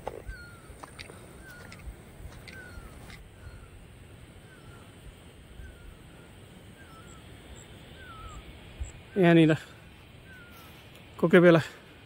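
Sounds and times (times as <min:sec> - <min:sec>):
bird calling: 0:00.0 - 0:11.9.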